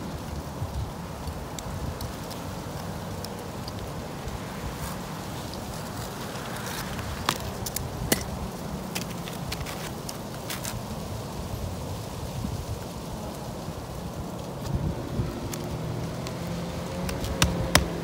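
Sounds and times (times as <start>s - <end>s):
shingles clicking and tapping: 17.0s - 18.0s.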